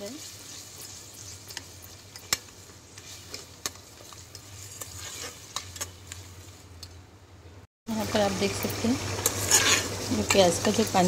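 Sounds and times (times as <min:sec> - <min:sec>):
paste sizzling in oil: 0:00.0 - 0:06.8, 0:07.9 - 0:11.0
metal spatula scraping pot: 0:00.1 - 0:06.2, 0:09.2 - 0:10.5.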